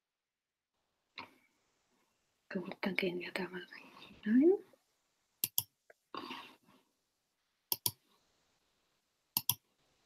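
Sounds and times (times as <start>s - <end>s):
computer mouse clicks: 5.4s - 5.7s, 7.7s - 8.0s, 9.4s - 9.6s.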